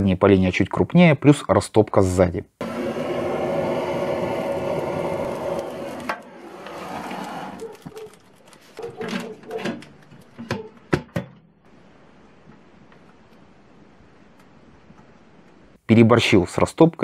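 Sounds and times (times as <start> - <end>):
gas torch hissing: 2.6 - 7.4.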